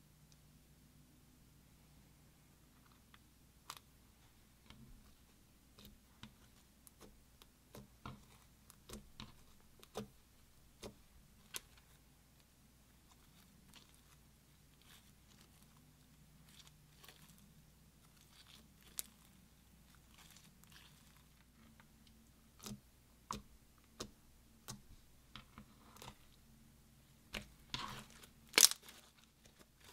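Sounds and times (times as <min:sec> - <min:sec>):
sticky clicks of slime being handled: 0:22.6 - 0:26.2, 0:27.3 - 0:29.9.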